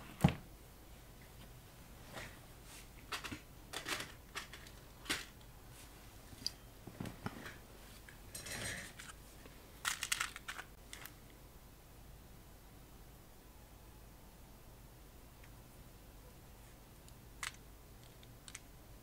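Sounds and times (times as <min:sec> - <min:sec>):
fuses rattling in plastic box: 0:03.1 - 0:05.4, 0:09.8 - 0:11.2.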